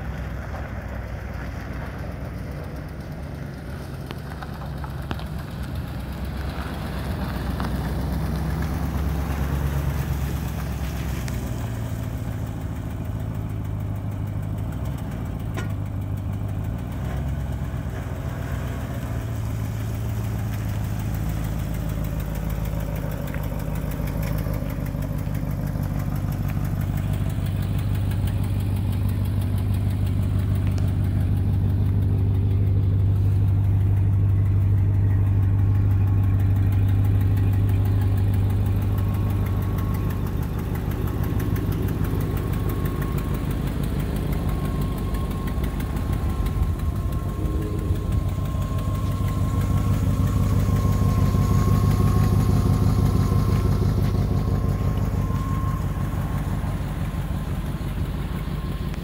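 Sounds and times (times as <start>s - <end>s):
car engine idling: 0.0s - 59.0s.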